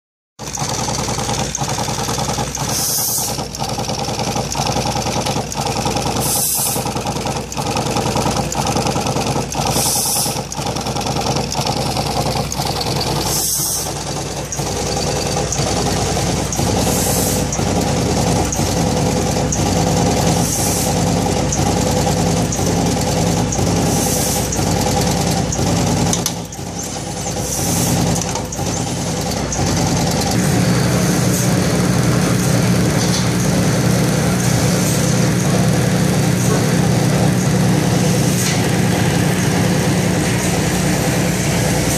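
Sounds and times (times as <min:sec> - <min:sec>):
machine mechanical clatter: 0:00.4 - 0:41.9
short pneumatic hiss: 0:02.6 - 0:03.4, 0:06.2 - 0:06.9, 0:09.6 - 0:10.5, 0:13.1 - 0:14.0, 0:16.8 - 0:17.5, 0:20.4 - 0:21.0, 0:23.8 - 0:24.6, 0:27.4 - 0:28.1.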